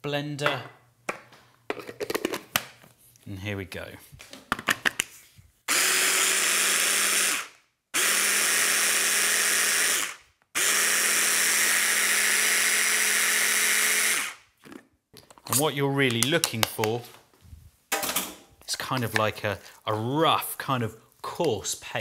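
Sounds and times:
stick blender motor whining: 5.7 - 14.4.

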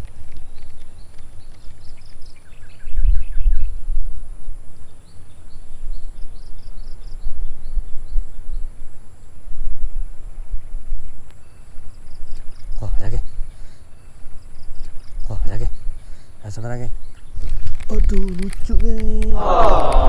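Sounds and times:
bird chirping: 0.0 - 9.4, 11.3 - 19.4
wind buffeting microphone: 0.0 - 20.0.

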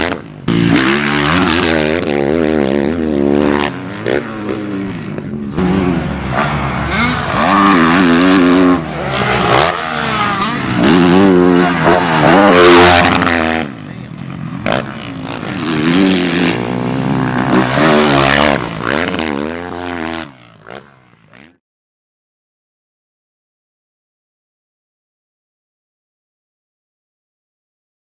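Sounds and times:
motocross bike revving: 0.0 - 21.6.

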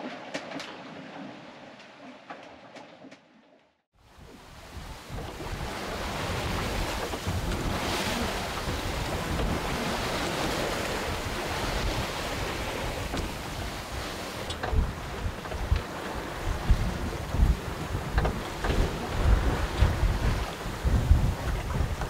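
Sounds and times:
waves rushing along hull: 4.0 - 22.0
wind buffeting microphone: 4.1 - 22.0.

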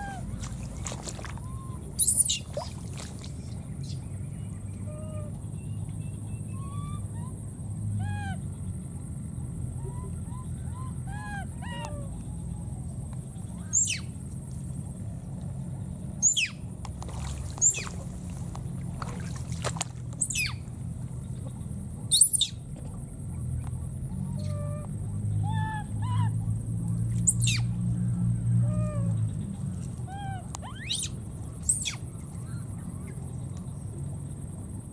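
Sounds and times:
baby monkey cooing and squealing: 1.5 - 2.5, 20.2 - 20.6, 27.3 - 27.6, 30.1 - 32.0.

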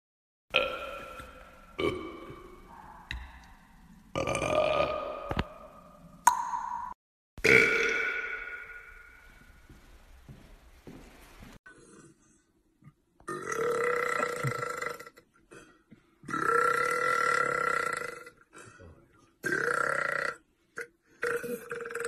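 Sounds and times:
man burping: 0.5 - 2.6, 4.1 - 5.2, 7.4 - 8.9, 13.3 - 18.5, 19.4 - 22.0.

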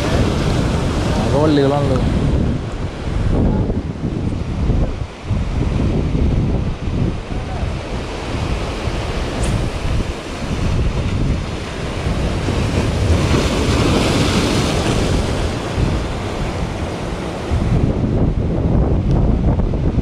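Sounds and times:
sea waves breaking: 0.0 - 20.0
wind buffeting microphone: 0.0 - 20.0.

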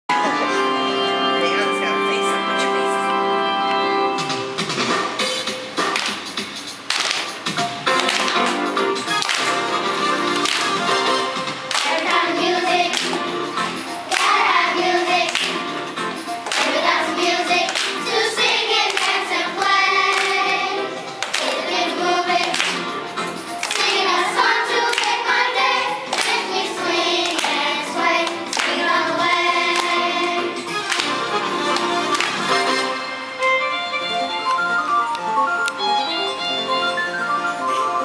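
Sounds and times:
hands clapping: 5.8 - 13.3, 14.0 - 29.0, 29.7 - 32.8
children singing together: 11.8 - 13.2, 14.0 - 15.7, 16.5 - 22.7, 23.6 - 30.6.

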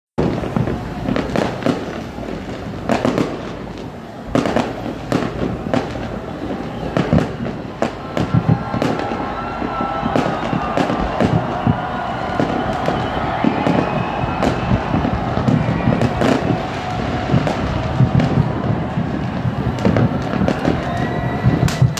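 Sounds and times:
crowd hubbub: 0.2 - 21.9
fireworks bangs: 0.2 - 21.9.

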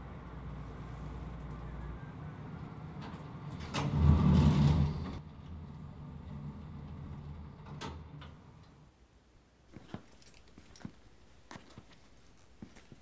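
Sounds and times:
elevator doors sliding open: 2.7 - 8.4.

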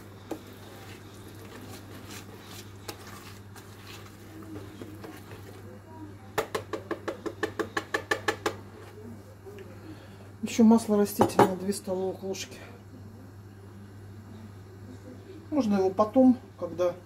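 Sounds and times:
whisk stirring dough: 0.0 - 9.0
whisk clacking against bowl: 6.4 - 8.6.

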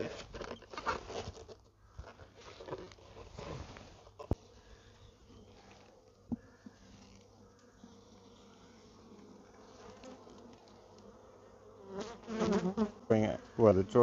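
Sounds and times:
honeybees buzzing: 4.2 - 14.0.

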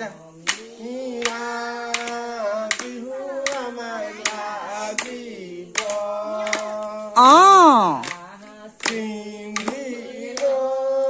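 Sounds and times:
woman singing unaccompanied: 0.0 - 11.0
hand claps keeping a beat: 0.4 - 11.0.

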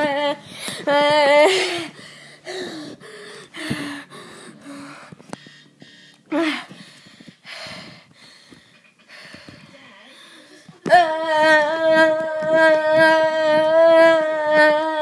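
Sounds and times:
boy humming: 0.0 - 5.1, 9.8 - 15.0.

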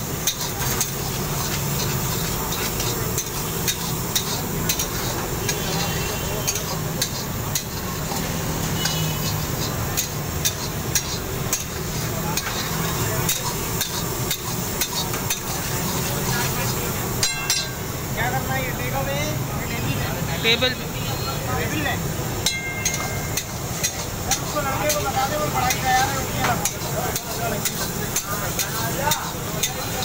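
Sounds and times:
metal ladle scraping a wok: 0.0 - 17.8
oil sizzling: 0.0 - 30.0
metal clinks on pan: 0.2 - 1.0, 6.4 - 11.8, 17.2 - 17.9, 22.4 - 30.0.

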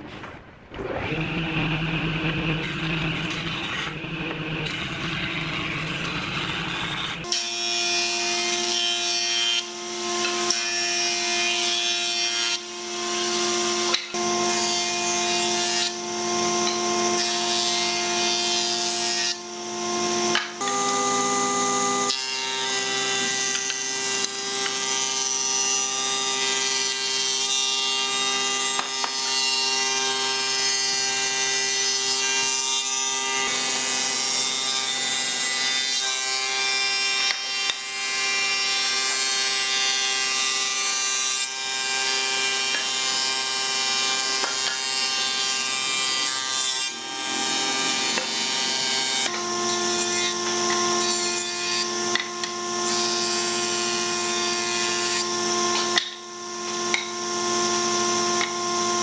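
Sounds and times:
planer cutterhead whine: 0.7 - 59.0
wooden boards being planed: 0.8 - 59.0.

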